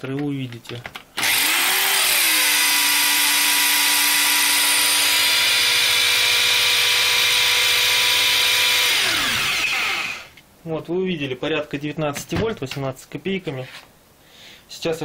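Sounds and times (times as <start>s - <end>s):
generator whine: 1.2s - 10.4s.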